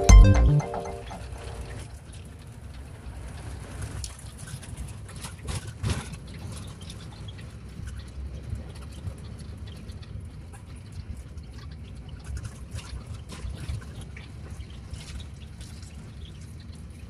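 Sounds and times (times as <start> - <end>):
water trickling and lapping: 4.3 - 17.0.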